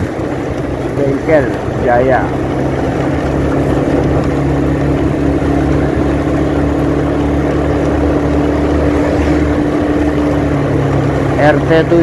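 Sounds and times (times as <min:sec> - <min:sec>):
motorcycle engine cruising: 0:00.0 - 0:12.0
road noise: 0:00.0 - 0:12.0.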